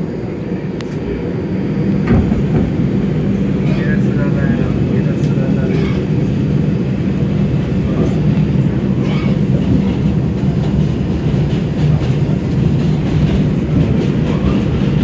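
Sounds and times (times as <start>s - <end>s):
subway train wheels rumbling: 0.0s - 15.0s.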